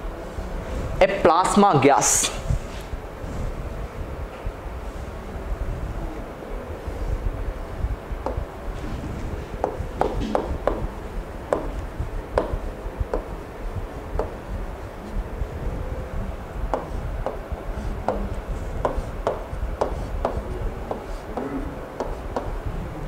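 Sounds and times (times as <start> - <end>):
low steady rumble: 0.0 - 23.0
pen tapping on glass screen: 9.6 - 10.9, 11.5 - 11.8, 12.4 - 13.3, 14.2 - 14.4, 18.1 - 21.1, 22.0 - 22.5.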